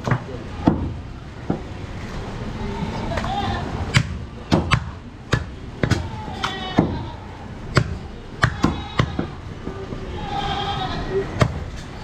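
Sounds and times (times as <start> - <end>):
cleaver chopping on wooden block: 4.0 - 6.0, 7.8 - 9.3.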